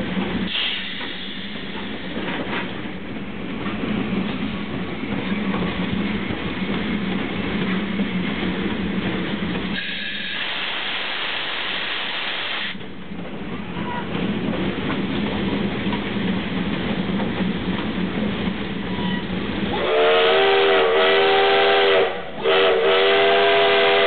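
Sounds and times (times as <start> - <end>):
steam hissing: 0.4 - 2.2, 9.7 - 12.8
steam whistle chord: 19.8 - 24.0.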